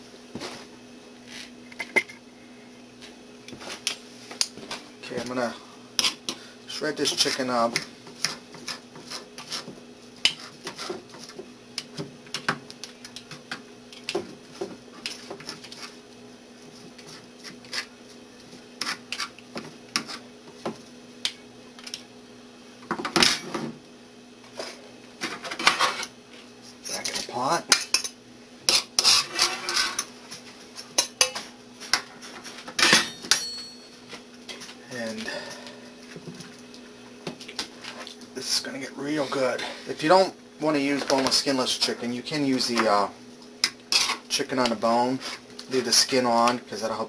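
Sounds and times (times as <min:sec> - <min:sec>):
tongs scraping on cutting board: 0:06.0 - 0:06.4, 0:07.0 - 0:11.4, 0:17.0 - 0:17.9, 0:18.8 - 0:20.3, 0:28.7 - 0:30.1.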